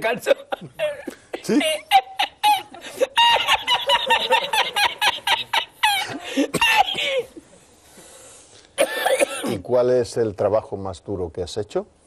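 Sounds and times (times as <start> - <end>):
man laughing uncontrollably: 0.2 - 7.3.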